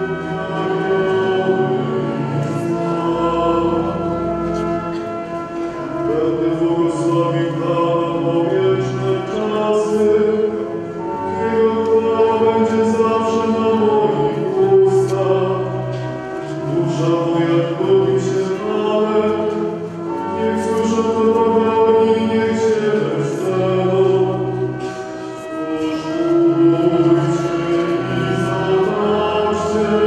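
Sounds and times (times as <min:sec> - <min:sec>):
choir singing a hymn: 0:00.0 - 0:30.0.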